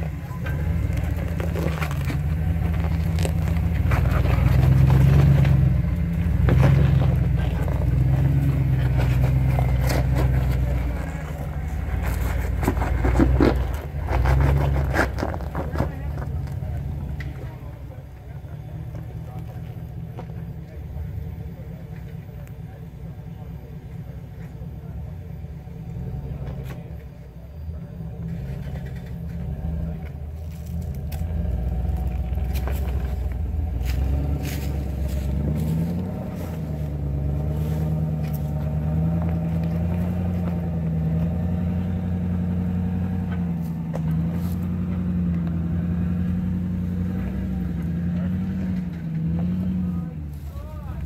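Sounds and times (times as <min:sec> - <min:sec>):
off-road vehicle engine under load: 0:00.0 - 0:51.0
tires clicking and knocking on rock: 0:00.0 - 0:51.0.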